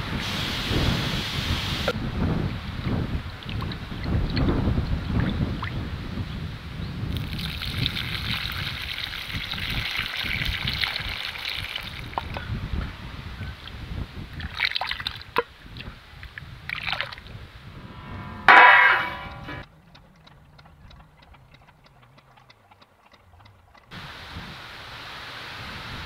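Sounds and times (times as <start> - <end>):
water pouring and trickling: 2.6 - 6.0, 7.1 - 17.4.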